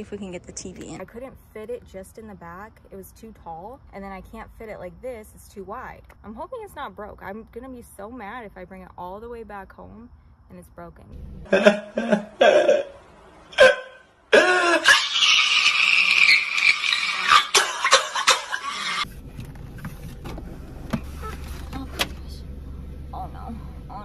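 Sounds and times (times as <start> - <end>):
man wailing distorted: 11.5 - 13.0, 13.6 - 19.0.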